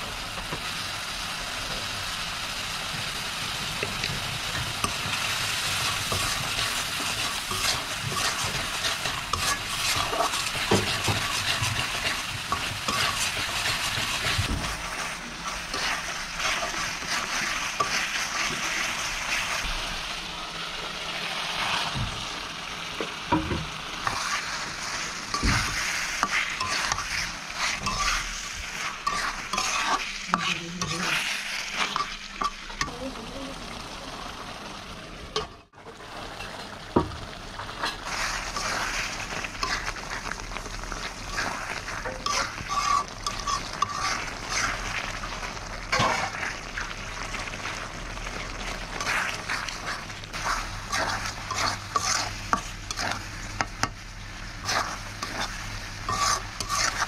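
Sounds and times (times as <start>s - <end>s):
fish sizzling in oil: 0.0s - 57.0s
metal spoon scraping pot: 27.8s - 28.3s, 29.0s - 31.2s, 41.3s - 44.7s, 50.9s - 53.2s, 56.1s - 57.0s.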